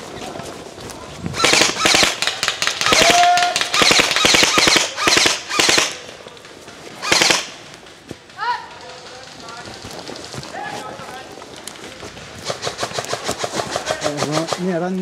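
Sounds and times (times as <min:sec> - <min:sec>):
airsoft rifle bursts: 0:01.4 - 0:06.1, 0:07.0 - 0:07.7.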